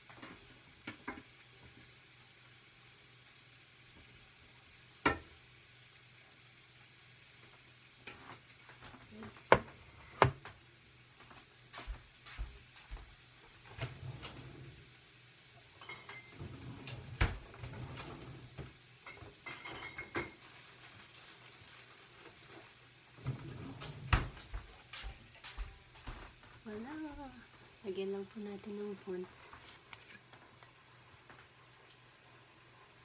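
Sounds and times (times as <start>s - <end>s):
dishes clinking on countertop: 5.0s - 5.3s, 15.8s - 16.4s, 19.0s - 20.4s.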